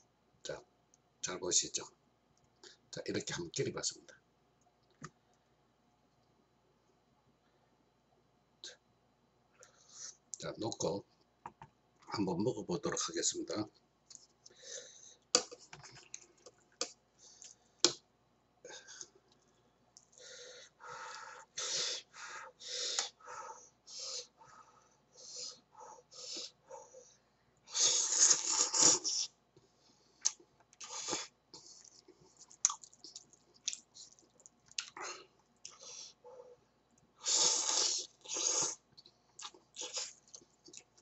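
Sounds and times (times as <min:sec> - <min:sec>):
person slurping noodles: 0:27.8 - 0:29.3, 0:37.2 - 0:38.8.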